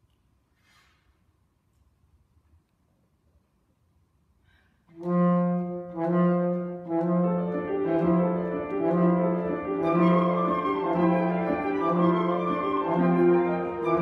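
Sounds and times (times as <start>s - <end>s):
chamber music trio: 4.9s - 14.0s
flute high notes: 8.9s - 14.0s.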